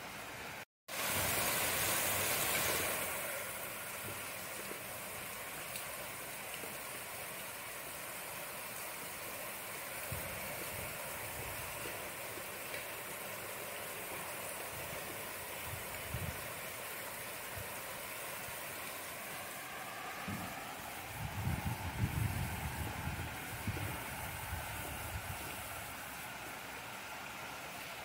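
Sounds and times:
steady rain hiss: 0:00.0 - 0:28.0
faint ticks of raindrops: 0:02.4 - 0:19.2.

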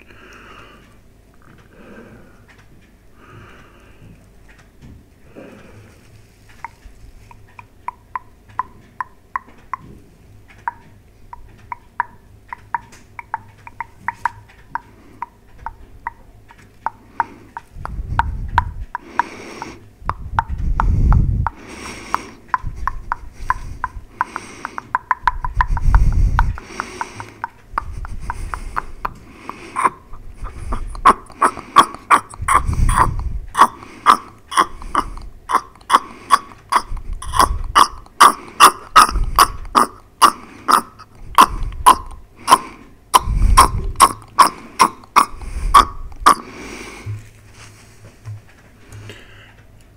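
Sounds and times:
heavy breaths into microphone: 0:05.2 - 0:07.0, 0:25.6 - 0:35.3, 0:45.3 - 0:49.6
wet tongue and lip clicks: 0:06.5 - 0:09.9, 0:10.5 - 0:46.6.

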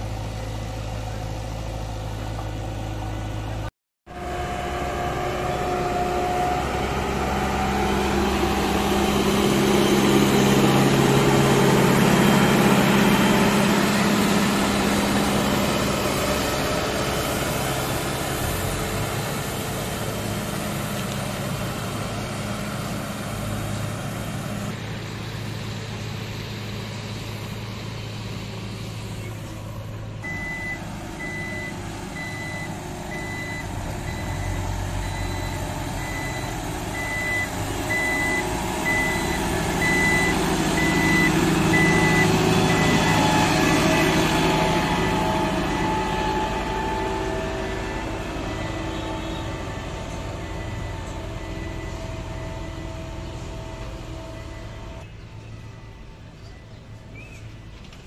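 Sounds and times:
construction machine engines running: 0:00.0 - 0:58.0
reversing alarm beeping: 0:30.2 - 0:56.6.

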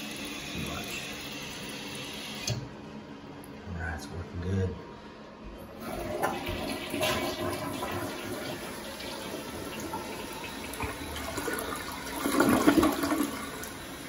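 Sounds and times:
toilet water rushing: 0:00.0 - 0:02.6, 0:05.7 - 0:14.0.

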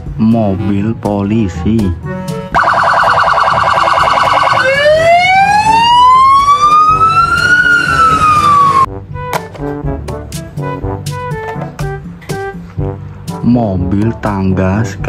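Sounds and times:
police siren: 0:02.5 - 0:08.9.

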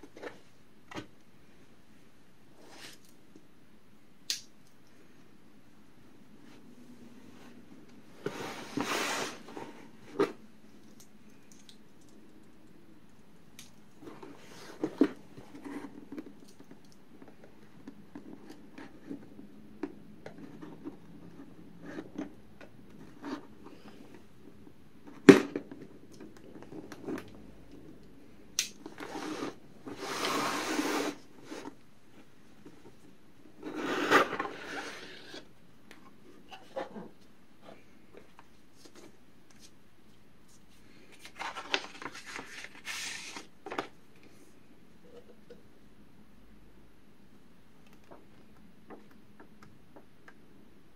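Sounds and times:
cardboard scraping and rustling: 0:08.2 - 0:10.4
paper rustling: 0:40.5 - 0:43.8.

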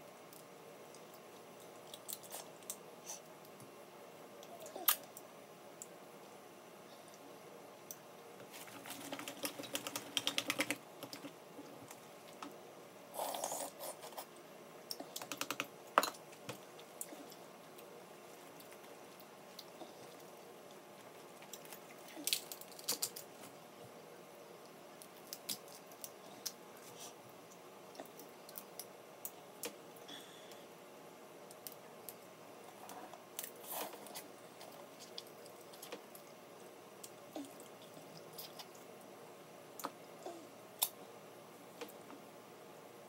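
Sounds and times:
crab shells cracking: 0:21.6 - 0:23.3.

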